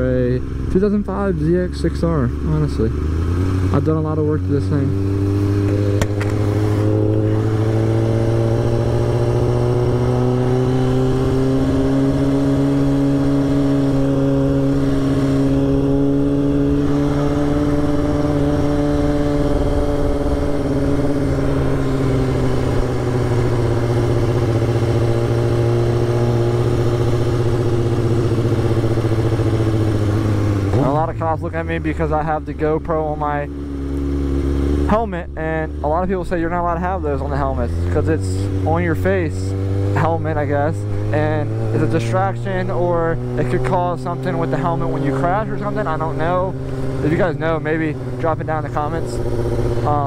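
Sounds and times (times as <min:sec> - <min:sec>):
motorcycle engine and exhaust running: 0:00.0 - 0:50.0.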